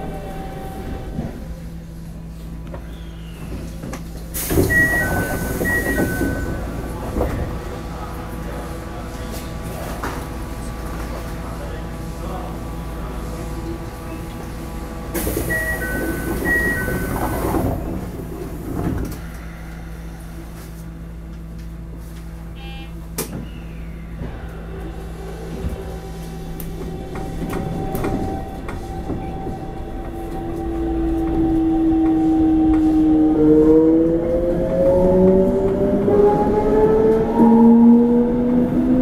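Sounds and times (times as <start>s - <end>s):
train doors hissing closed: 2.8s - 11.6s, 13.1s - 20.8s
two-tone door chime: 4.7s - 6.6s, 15.5s - 17.4s.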